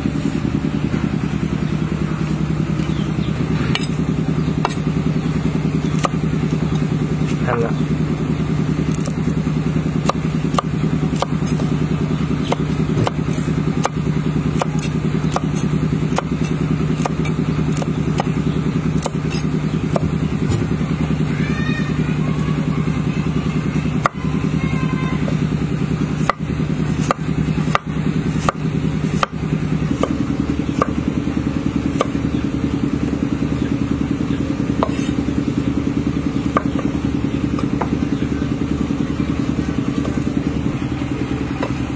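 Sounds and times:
low motor drone: 0.0 - 41.9
cleaver chopping on wooden board: 4.6 - 4.9, 5.9 - 6.2, 8.9 - 9.4, 10.0 - 11.7, 12.4 - 20.7, 26.2 - 31.1, 31.9 - 32.2, 34.8 - 35.2, 36.4 - 36.9.

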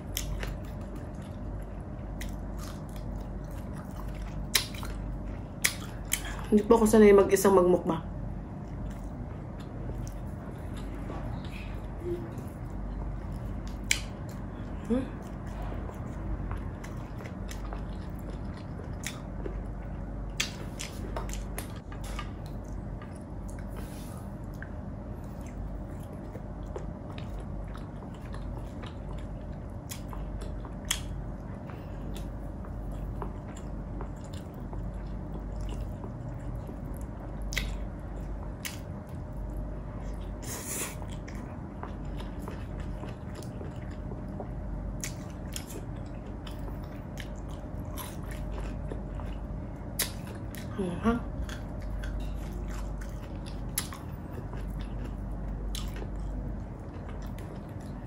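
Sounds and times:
wet chewing and biting: 0.0 - 6.4, 12.4 - 58.0.

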